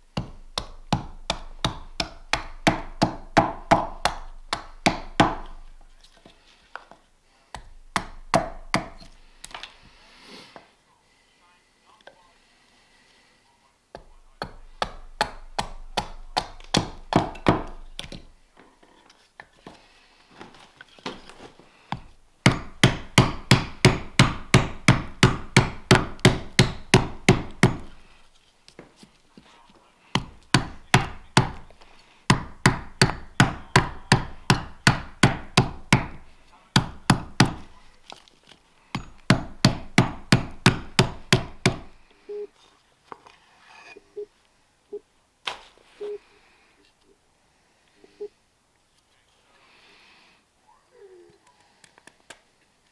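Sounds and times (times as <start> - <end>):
axe chopping wood: 0.1 - 5.6, 7.6 - 9.6, 14.0 - 18.3, 21.9 - 28.0, 30.2 - 37.7, 39.0 - 42.0.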